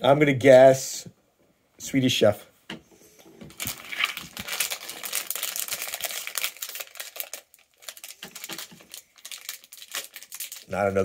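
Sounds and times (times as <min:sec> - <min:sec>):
plastic foil bag crinkling: 0:03.5 - 0:11.0.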